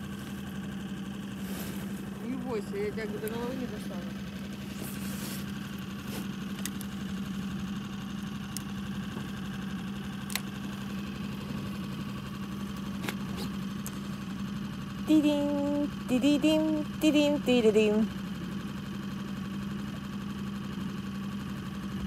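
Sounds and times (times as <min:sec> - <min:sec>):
outboard motor running: 0:00.0 - 0:22.0
light clicks: 0:06.5 - 0:07.0.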